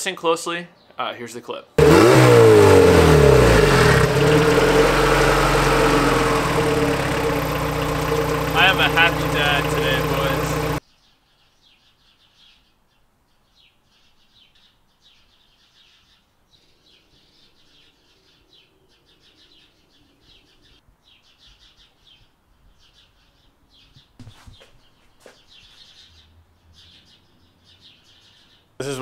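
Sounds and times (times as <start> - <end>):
low hum: 1.8 - 10.8
small birds chirping: 2.9 - 29.0.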